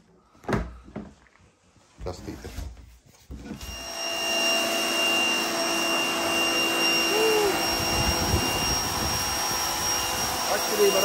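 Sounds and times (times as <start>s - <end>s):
pump motor whine: 3.6s - 11.0s
water jet hissing on concrete: 7.2s - 11.0s.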